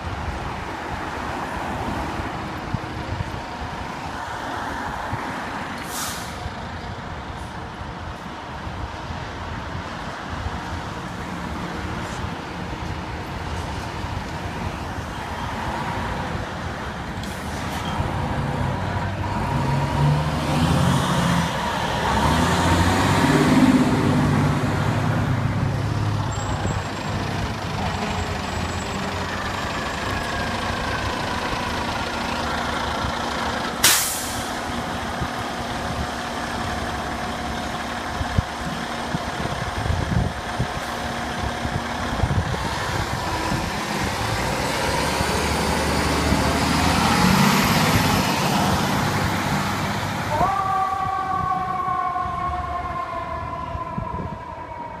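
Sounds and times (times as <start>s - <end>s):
fire engine driving past: 0.0s - 55.0s
air brake hiss: 5.8s - 6.4s, 33.8s - 34.6s.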